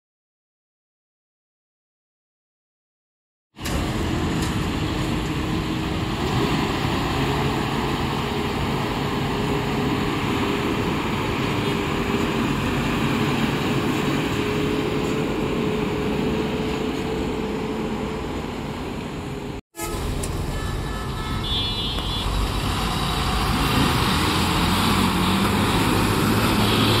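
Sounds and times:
diesel truck engine under load: 3.6s - 27.0s.

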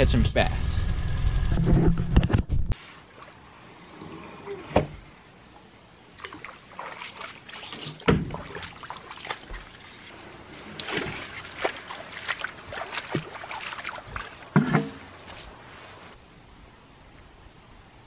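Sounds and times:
knocks and scrapes: 1.3s - 2.8s
bare feet splashing in water: 6.2s - 16.0s.

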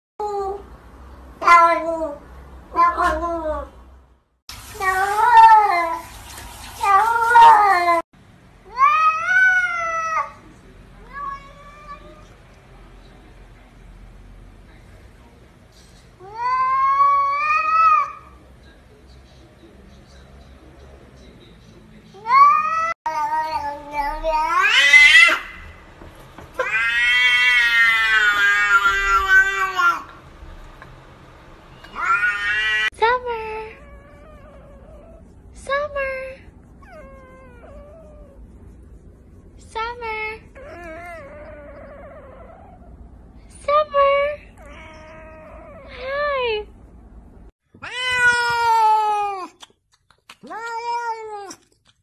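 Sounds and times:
cat meowing: 22.2s - 25.7s, 26.6s - 30.1s, 31.8s - 32.9s, 44.6s - 45.9s, 47.8s - 49.6s, 50.4s - 51.7s.

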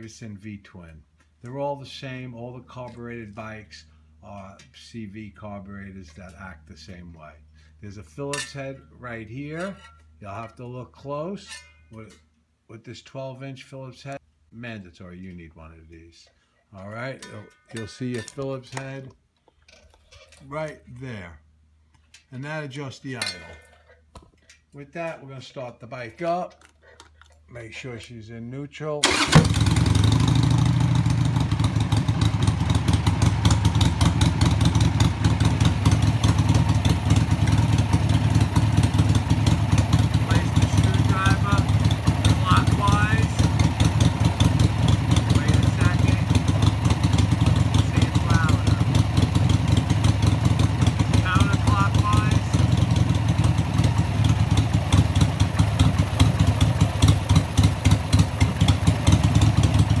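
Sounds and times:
motorcycle engine idling: 29.0s - 60.0s.

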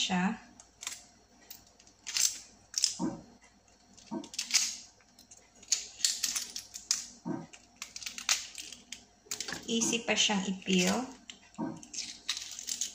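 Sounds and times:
eggshell cracking and peeling: 5.6s - 9.6s, 10.9s - 12.9s.

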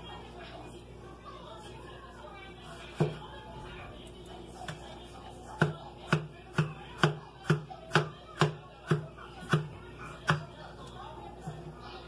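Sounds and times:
knife chopping on plastic board: 3.0s - 3.2s, 5.6s - 10.5s.

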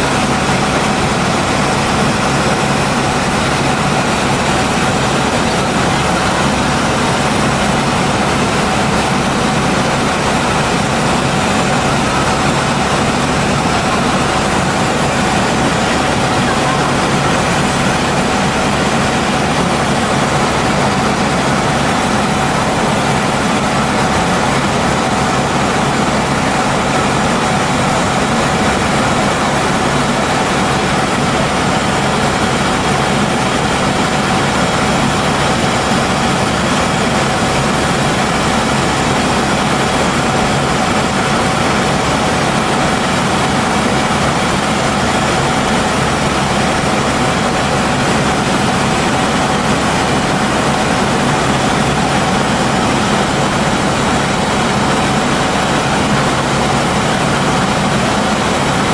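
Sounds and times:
helicopter engine and rotor noise: 0.0s - 58.9s.

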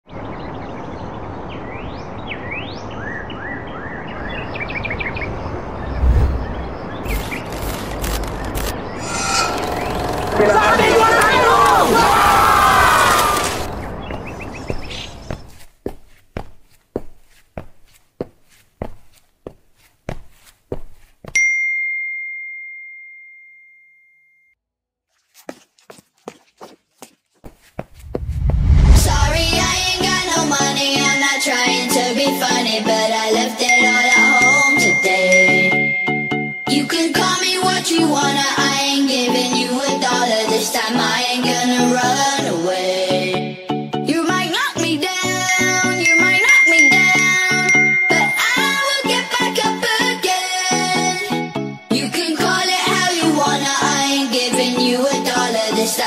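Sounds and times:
birds chirping and calling: 13.5s - 15.5s
bell-like ding: 21.4s - 24.6s, 33.7s - 37.0s, 46.1s - 48.8s.

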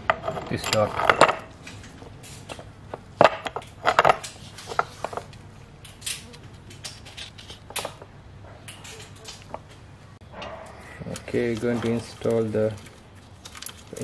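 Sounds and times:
metal sprockets clinking and knocking: 0.1s - 1.5s.

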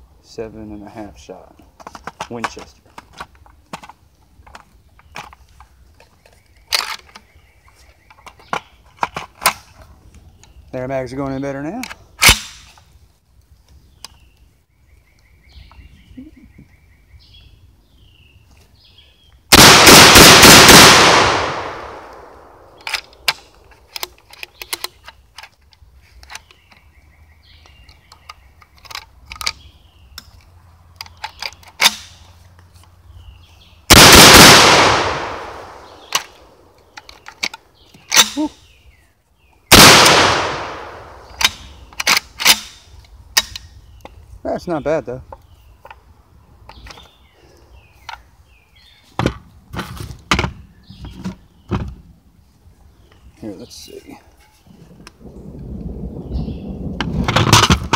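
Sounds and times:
shotgun blasts: 19.5s - 23.3s, 33.9s - 36.5s, 39.7s - 41.8s.

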